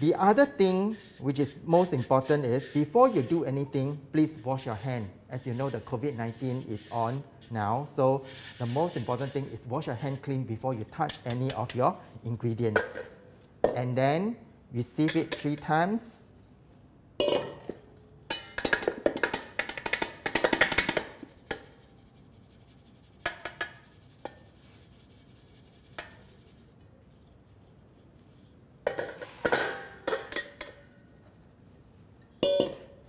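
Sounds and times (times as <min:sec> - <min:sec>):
metal bowls and sieve clanking: 0:01.8 - 0:03.4, 0:12.6 - 0:13.9, 0:17.2 - 0:21.6, 0:28.8 - 0:31.0, 0:32.3 - 0:33.0.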